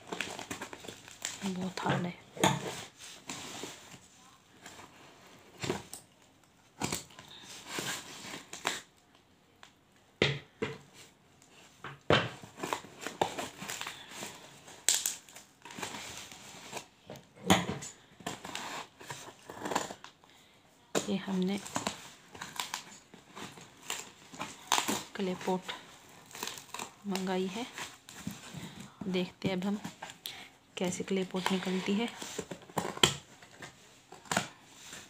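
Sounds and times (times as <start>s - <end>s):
tearing plastic tape and cardboard: 0.0s - 4.1s, 6.8s - 9.1s, 12.3s - 17.0s, 18.3s - 20.2s, 21.1s - 28.8s
scissors cutting cardboard: 18.3s - 20.1s.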